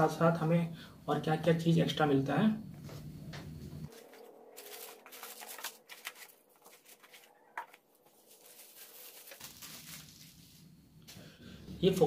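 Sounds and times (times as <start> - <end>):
cardboard and plastic bags rustling: 3.9 - 10.8.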